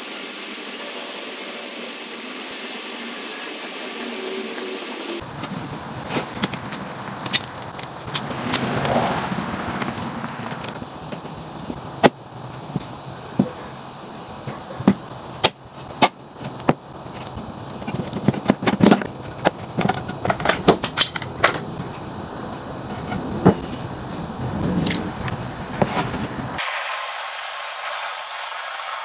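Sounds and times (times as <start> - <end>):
wood and tools knocking: 14.5 - 22.0.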